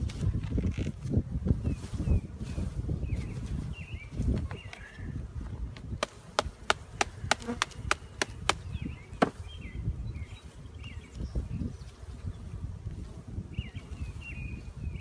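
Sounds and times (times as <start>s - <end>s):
sharp wooden knocks: 6.0s - 8.6s.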